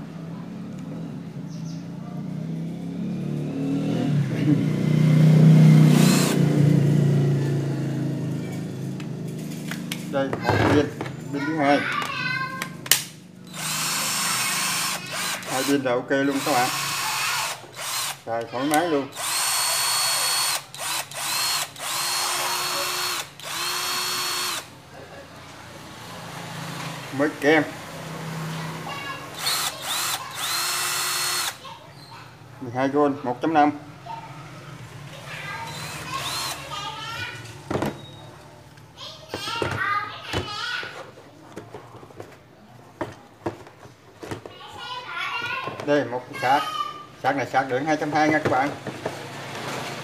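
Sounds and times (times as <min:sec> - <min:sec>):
cordless drill motor hum: 0:05.9 - 0:06.4, 0:13.4 - 0:24.7, 0:29.3 - 0:31.6, 0:35.6 - 0:36.7.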